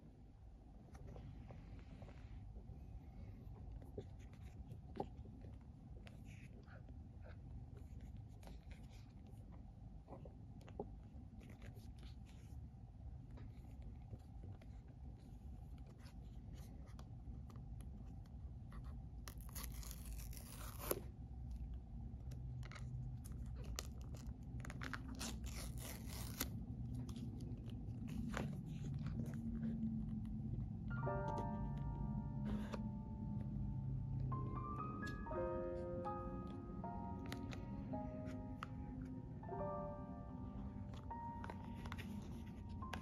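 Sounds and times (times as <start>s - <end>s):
paper seal ripping: 19.4s - 21.1s, 23.6s - 26.6s.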